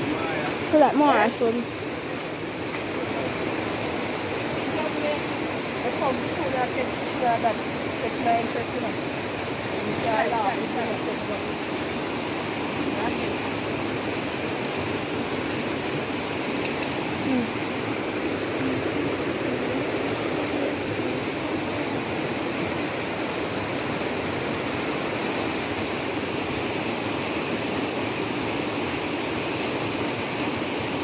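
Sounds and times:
river rushing over stones: 0.0s - 31.0s.

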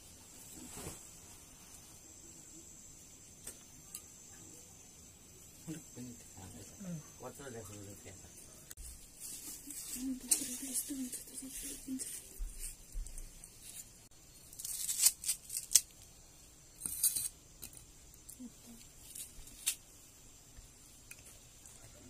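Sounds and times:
onion skin crackling and tearing: 14.4s - 16.2s.

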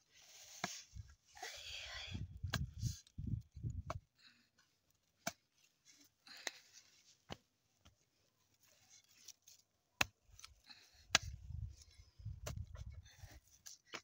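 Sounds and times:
rustling of dry stalks: 0.0s - 14.0s.

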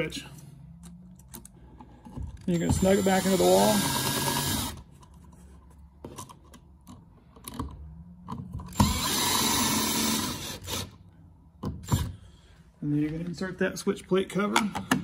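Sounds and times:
cordless drill driving screws: 2.4s - 4.8s, 8.7s - 11.0s.

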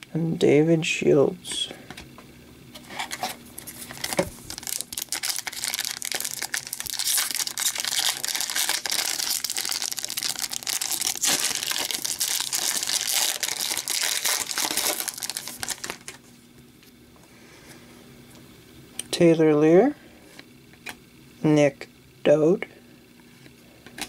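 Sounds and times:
plastic wrapper crinkling and tearing: 3.0s - 16.3s.

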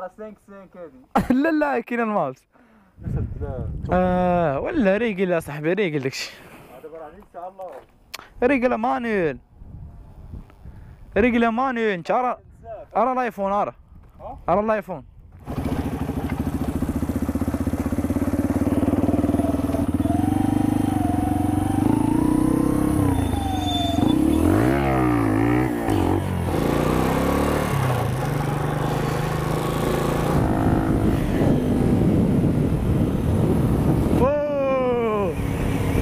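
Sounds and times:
motorcycle engine revving: 15.3s - 34.2s, 35.1s - 36.0s.

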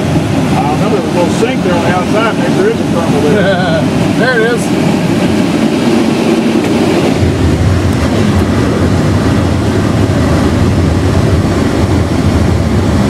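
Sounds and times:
airflow rushing: 0.0s - 13.0s
low rumble: 0.0s - 13.0s.

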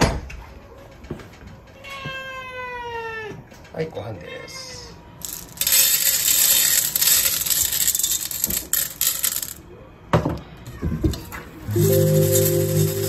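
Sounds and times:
kibble rattling on metal tray: 5.2s - 9.6s, 11.7s - 13.0s.

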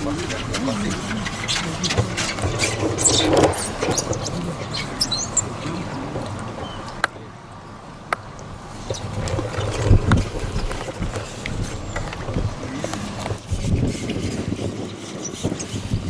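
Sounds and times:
wind buffeting microphone: 8.4s - 16.0s.

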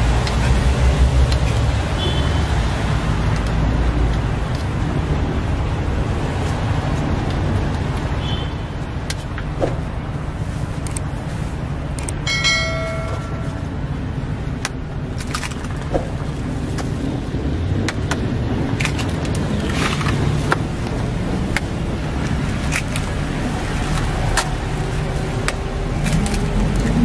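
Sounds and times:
low traffic rumble: 0.0s - 27.0s
high-pitched tone: 12.3s - 13.8s.

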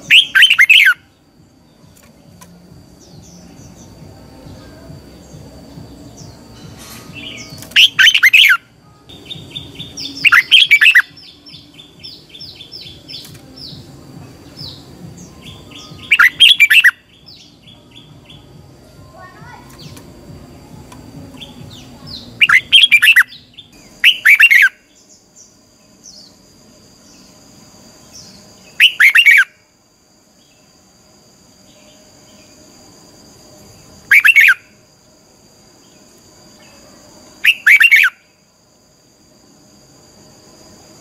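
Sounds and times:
bulbul singing whistled phrases: 0.0s - 20.0s, 21.2s - 26.4s, 28.0s - 29.7s, 33.7s - 34.9s, 35.8s - 38.4s.

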